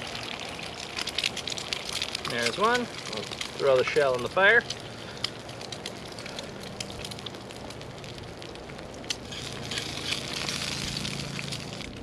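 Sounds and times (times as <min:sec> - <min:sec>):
campfire crackling and popping: 0:00.0 - 0:12.0
egg sizzling in oil: 0:00.0 - 0:12.0.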